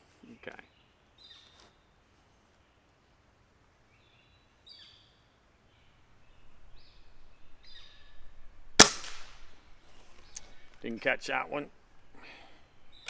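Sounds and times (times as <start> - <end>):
air rifle shot crack: 8.8 - 9.6.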